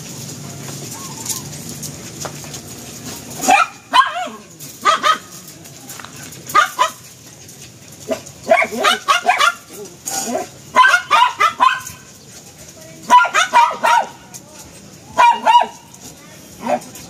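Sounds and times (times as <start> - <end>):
dog whining and yelping: 0.9 - 1.7.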